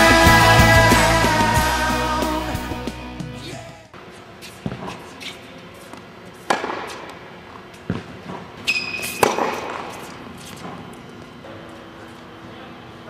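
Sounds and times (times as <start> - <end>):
tennis racquet hitting balls: 4.6 - 11.2.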